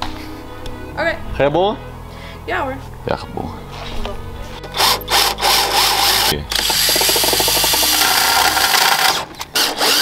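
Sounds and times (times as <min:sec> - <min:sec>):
cordless drill boring through steel: 0:04.8 - 0:10.0.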